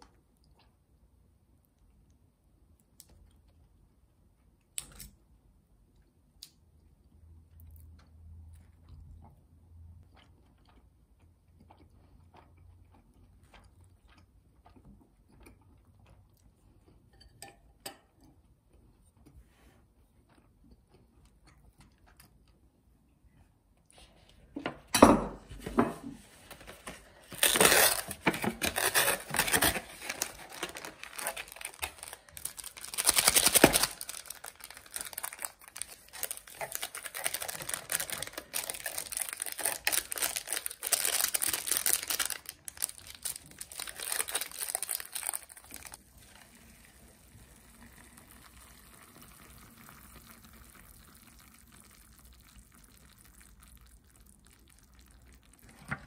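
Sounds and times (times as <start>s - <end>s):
wrapper crinkling and rustling: 26.3s - 46.4s.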